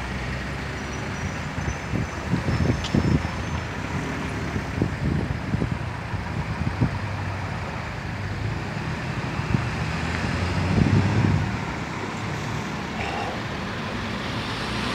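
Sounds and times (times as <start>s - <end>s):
street traffic hum: 0.0s - 14.9s
car passing: 8.7s - 14.9s.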